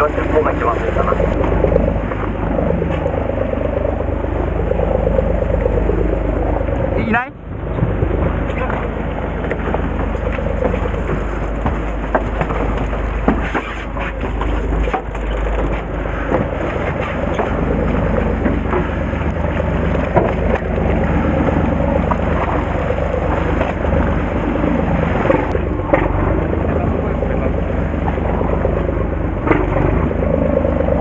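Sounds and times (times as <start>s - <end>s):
boat engine running: 0.0s - 31.0s
sea waves: 0.0s - 31.0s
wind: 0.0s - 31.0s.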